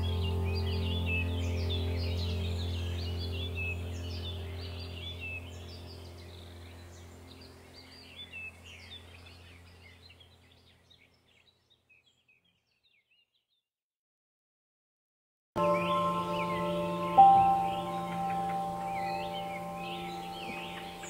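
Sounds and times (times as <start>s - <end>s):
steady low drone: 0.0s - 9.8s, 15.6s - 21.0s
birds chirping and calling: 0.0s - 13.2s, 15.6s - 21.0s.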